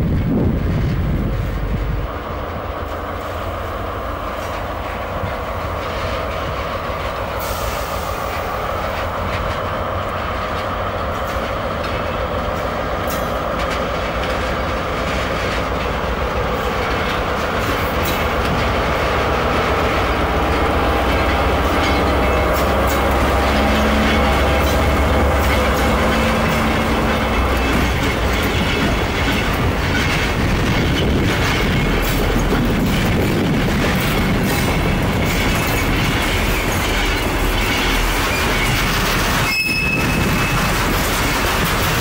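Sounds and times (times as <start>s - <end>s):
wheels clacking over rail joints: 0.6s - 42.0s
freight wagons rolling past: 5.3s - 42.0s.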